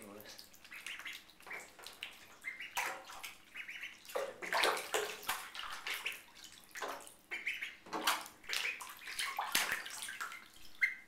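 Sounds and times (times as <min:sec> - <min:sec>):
ducklings splashing in water: 0:00.0 - 0:11.0.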